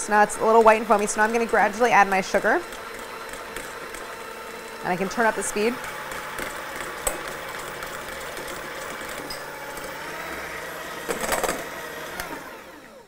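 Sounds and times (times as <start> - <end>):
electric hand mixer whipping: 0.0 - 13.0.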